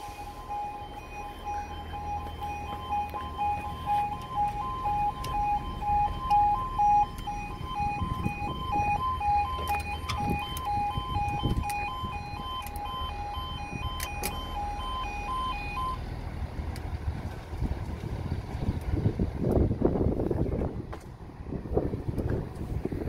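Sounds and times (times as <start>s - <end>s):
two-tone electronic warning alarm: 0.0s - 16.0s
low rumble: 0.0s - 23.0s.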